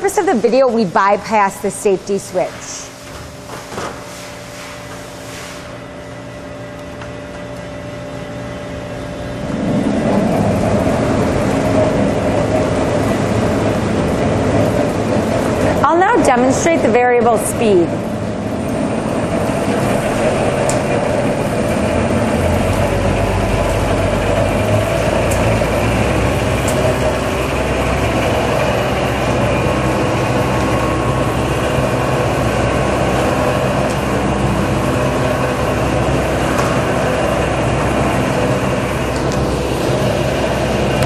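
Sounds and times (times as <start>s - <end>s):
mixer motor humming: 5.8s - 41.0s.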